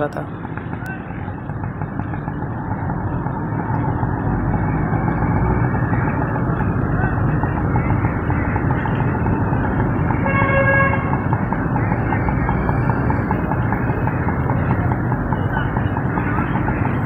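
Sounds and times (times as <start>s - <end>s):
vehicle horn honk: 10.2s - 11.2s.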